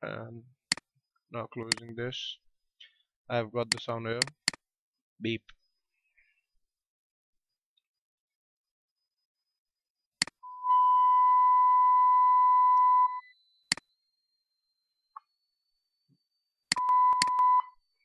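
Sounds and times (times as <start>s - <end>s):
sharp clicks: 1.6s - 2.0s, 3.6s - 4.6s
sine-wave censor beep: 10.4s - 15.1s, 16.7s - 18.0s.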